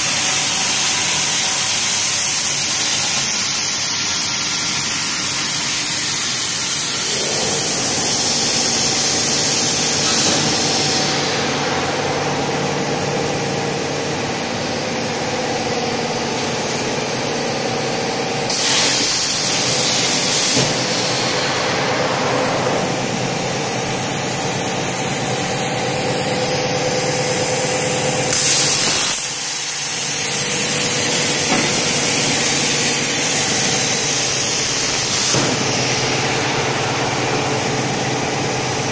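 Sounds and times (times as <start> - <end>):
plasma cutter arc hissing: 0.0 - 38.9
steady hum: 6.3 - 38.9.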